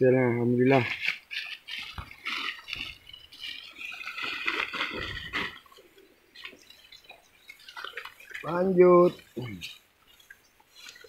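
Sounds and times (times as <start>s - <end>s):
plastic bag rustling: 1.0s - 6.5s.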